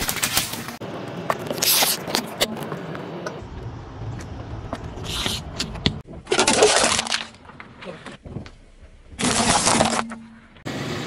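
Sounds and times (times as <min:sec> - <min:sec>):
car rumbling: 0:00.7 - 0:06.4
tyre crushing small objects: 0:06.0 - 0:10.6.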